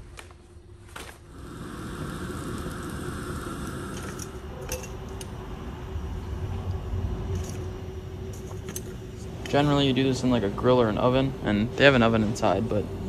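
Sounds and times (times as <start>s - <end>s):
gas stove burner rushing: 1.2s - 5.5s.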